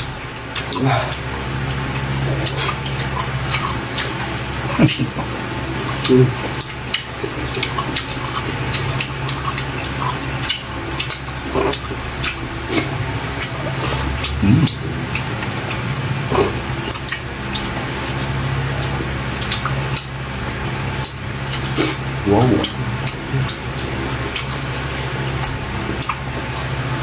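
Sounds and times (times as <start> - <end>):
steady low hum: 0.0 - 27.0
wet chewing and lip-smacking: 0.4 - 27.0.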